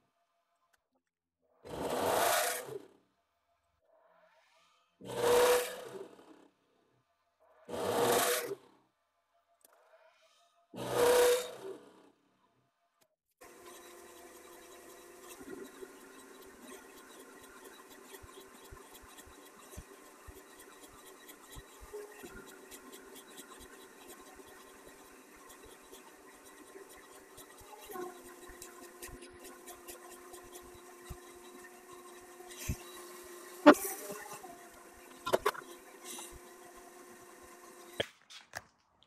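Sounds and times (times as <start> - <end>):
threading die scratching and clicking: 13.6 - 33.0.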